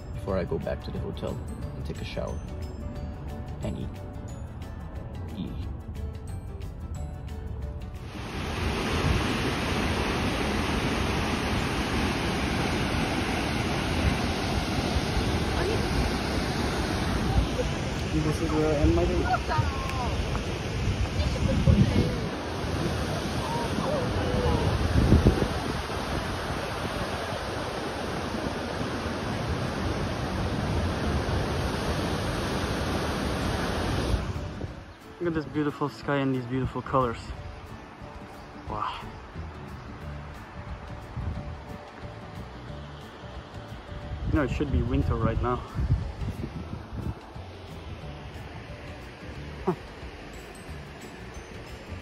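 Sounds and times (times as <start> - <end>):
wind: 0.0 - 52.0
sea surf: 7.9 - 52.0
wind buffeting microphone: 8.0 - 35.2, 39.2 - 42.7, 43.3 - 52.0.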